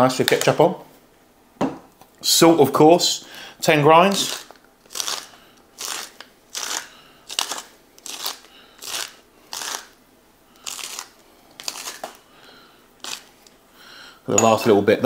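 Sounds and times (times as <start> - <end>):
salt grinder grinding: 4.0 - 10.0, 10.6 - 12.2, 13.0 - 13.5.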